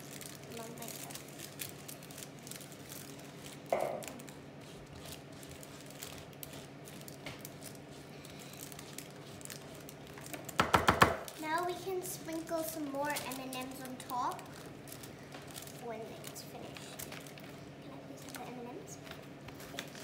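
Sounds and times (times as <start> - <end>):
rice puffs and paper crackling: 0.0 - 10.6, 11.2 - 20.0
knock: 10.6 - 11.2.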